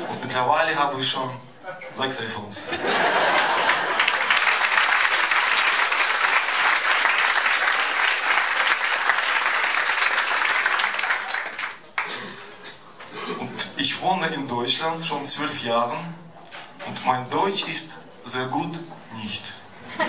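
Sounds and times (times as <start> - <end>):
audience applauding: 3.1 - 12.6.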